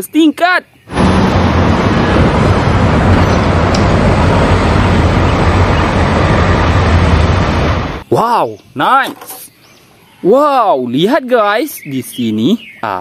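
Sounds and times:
bus driving past: 0.9 - 8.0
constant low hum: 0.9 - 8.0
street traffic noise: 0.9 - 8.1.

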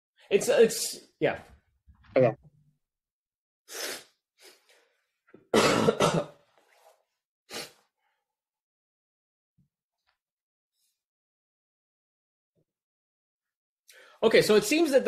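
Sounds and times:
person coughing: 5.5 - 6.4.

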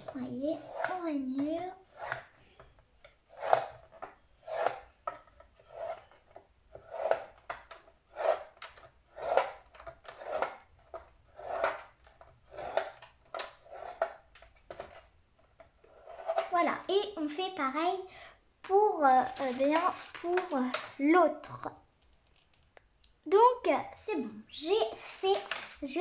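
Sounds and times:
stylus scraping on paper: 5.6 - 6.2.

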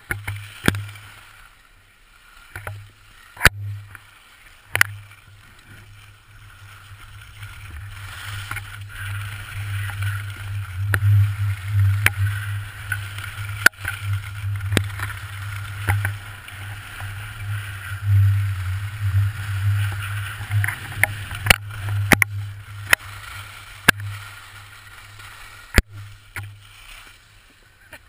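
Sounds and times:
skis carving snow: 0.0 - 28.0
wind rushing over microphone: 7.6 - 24.2.

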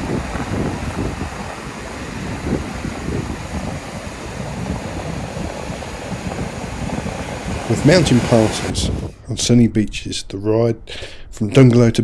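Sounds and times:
wind buffeting microphone: 0.0 - 9.4.

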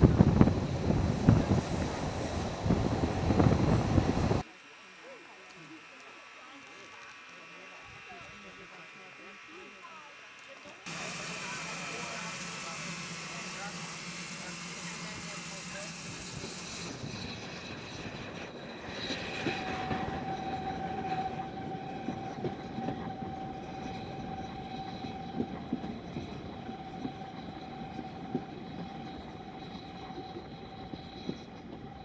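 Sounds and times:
train wheels rumbling on track: 0.0 - 4.4, 10.9 - 32.0.

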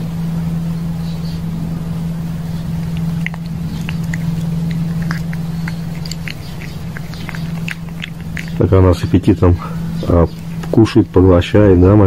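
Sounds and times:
steady low hum: 0.0 - 12.0
kitten chewing clicks: 2.6 - 9.2, 10.0 - 10.8.

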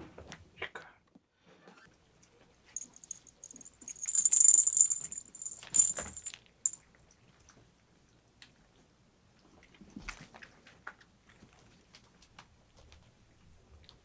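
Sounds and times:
high steady ringing tone: 2.8 - 6.3
metallic jingling: 2.8 - 6.8.

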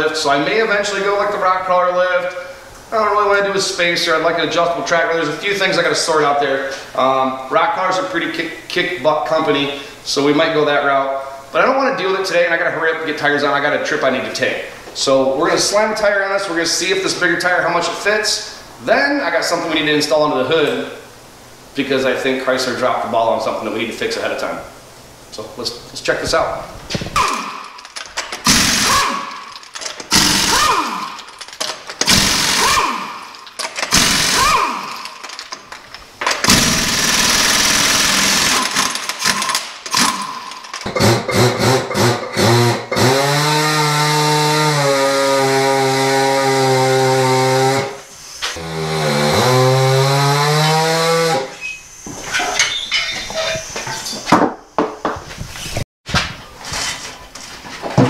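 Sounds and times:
tools clanking: 27.2 - 42.5, 51.6 - 54.4
air impact wrench buzzing: 27.2 - 46.1.

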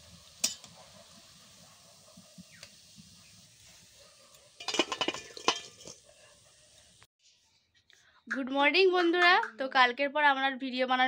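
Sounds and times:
metal spoon clinking on pan: 4.6 - 6.0.

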